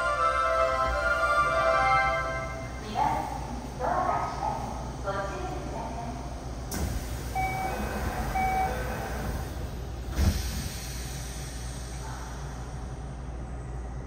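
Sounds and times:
train humming: 0.0s - 14.0s
sliding doors shutting with thump: 10.1s - 10.6s.

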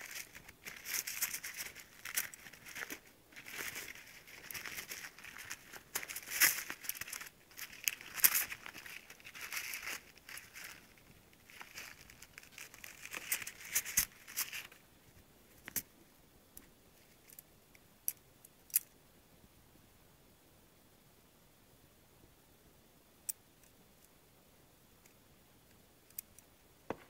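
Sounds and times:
packing material crinkling: 0.0s - 14.8s.

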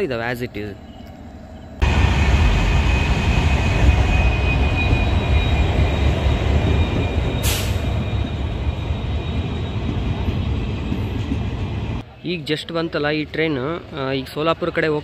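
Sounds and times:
train rumbling past on rails: 0.7s - 12.0s
high whine: 0.9s - 11.9s.

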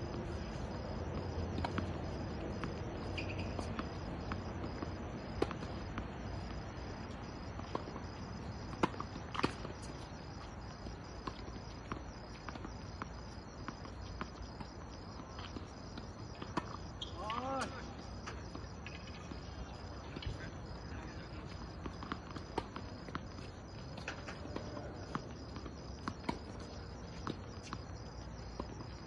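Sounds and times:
crickets chirring: 0.0s - 29.0s
tennis ball bouncing on court: 0.1s - 29.0s.

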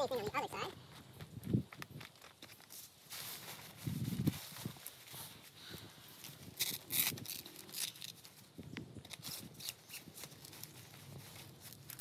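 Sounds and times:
tent fabric rustling: 2.5s - 8.5s.

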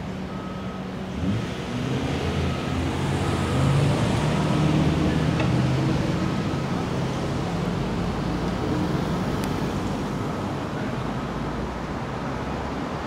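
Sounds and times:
engine running and revving: 0.0s - 10.7s
reversing alarm beeping: 0.2s - 1.4s, 2.0s - 5.4s.

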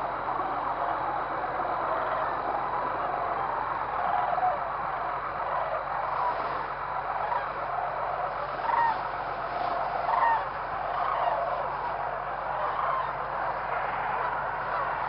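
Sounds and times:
flock of geese honking: 0.0s - 15.0s
single loud goose honks: 3.0s - 15.0s.

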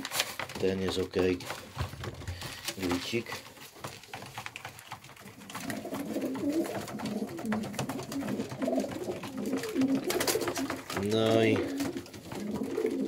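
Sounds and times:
beaks pecking at grit: 0.0s - 13.0s
pigeons cooing: 4.7s - 13.0s.

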